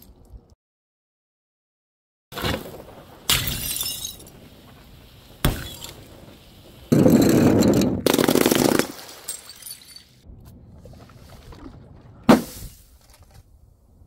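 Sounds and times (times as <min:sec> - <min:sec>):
glass bottles shattering: 0:03.3 - 0:04.3, 0:05.5 - 0:06.0, 0:07.0 - 0:10.2.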